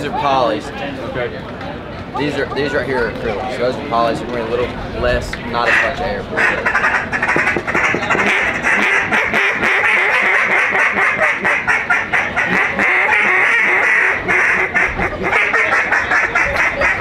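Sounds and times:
duck call quacking: 5.6 - 17.0.

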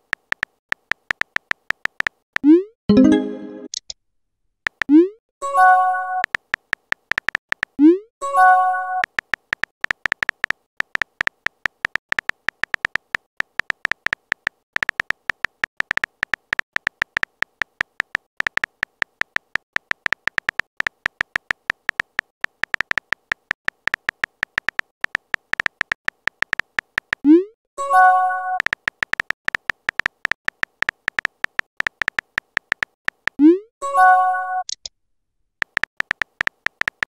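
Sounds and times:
phone keyboard clicks: 0.0 - 2.5, 4.7 - 4.9, 6.2 - 7.8, 9.0 - 27.3, 28.6 - 33.4, 35.6 - 37.0.

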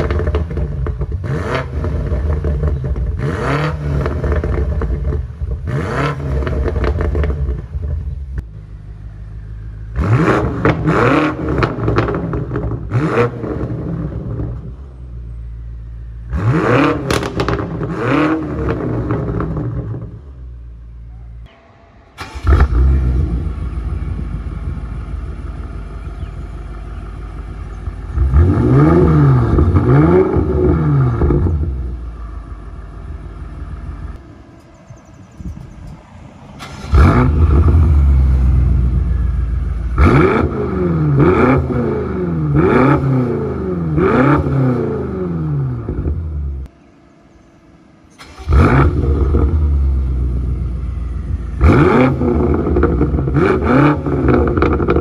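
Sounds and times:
car engine revving: 0.0 - 20.9, 22.2 - 34.2, 36.6 - 46.8, 48.1 - 55.0
car engine idling: 6.4 - 16.4, 18.5 - 41.2, 45.7 - 55.0.

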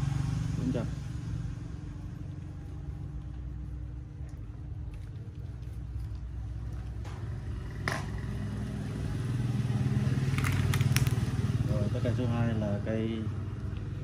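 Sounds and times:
engine running: 0.0 - 4.9.

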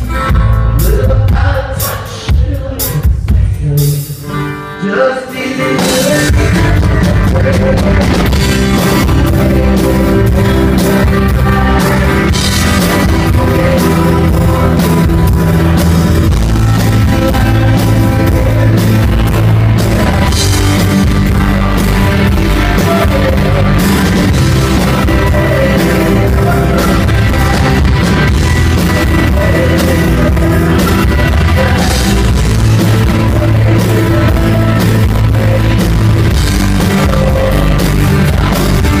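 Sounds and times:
rock band playing live: 0.0 - 39.0
man singing: 0.1 - 39.0
acoustic guitar strumming: 4.3 - 39.0.

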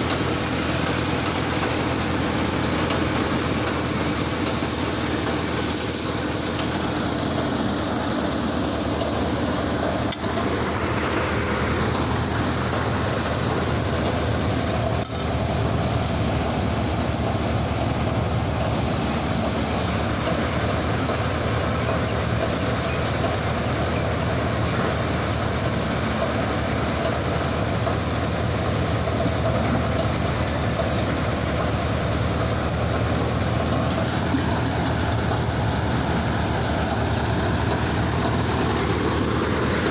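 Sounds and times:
tractor-powered thresher running: 0.0 - 39.9.

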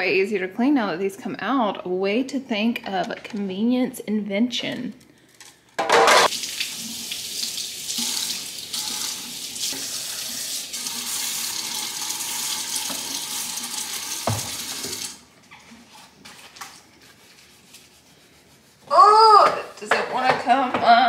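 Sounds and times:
faucet running into sink: 6.3 - 15.2
knock: 14.2 - 14.6.

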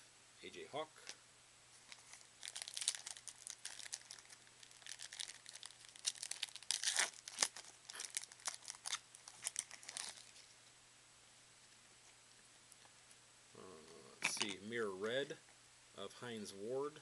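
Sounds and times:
wrapper crinkling and tearing: 1.9 - 10.4.

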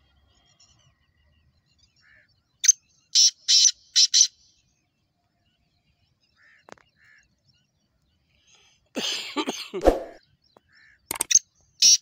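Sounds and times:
small bird chirps: 9.9 - 12.0.

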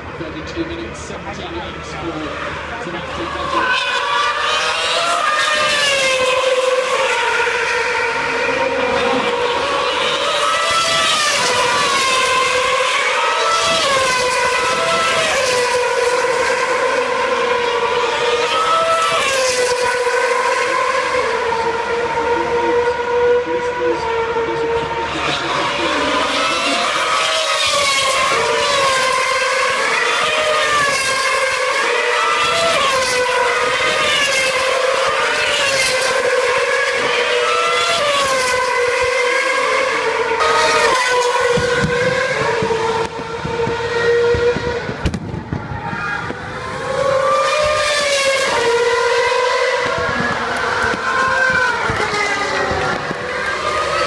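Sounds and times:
racing car engines at high revs: 0.0 - 54.0.

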